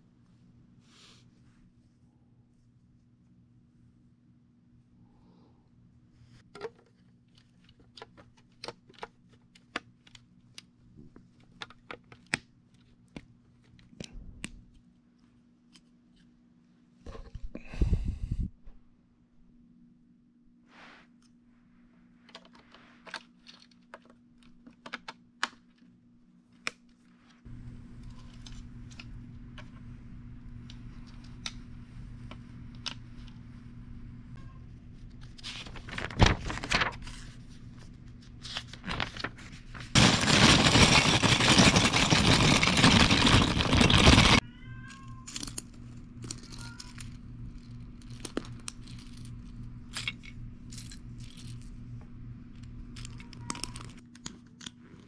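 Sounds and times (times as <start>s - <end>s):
steady low hum: 27.5s - 40.2s, 45.6s - 53.0s
plastic bag rustling: 38.6s - 44.4s
plastic bricks clicking: 40.0s - 44.4s.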